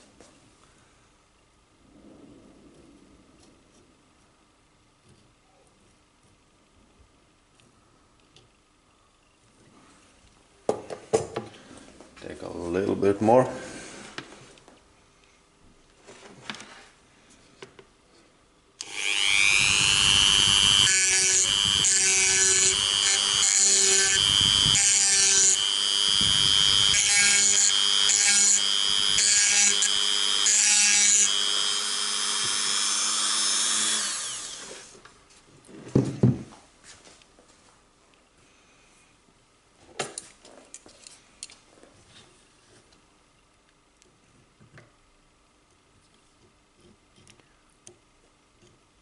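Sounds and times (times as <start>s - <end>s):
rotary tool grinding metal: 18.8s - 34.9s.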